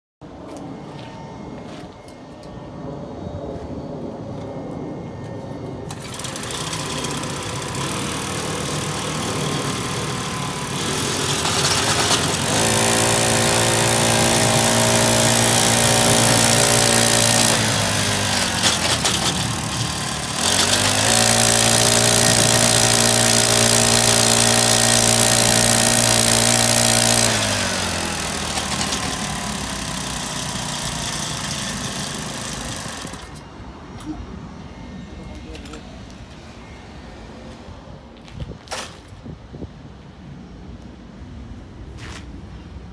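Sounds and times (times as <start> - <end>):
small engine revving: 5.9 - 33.4.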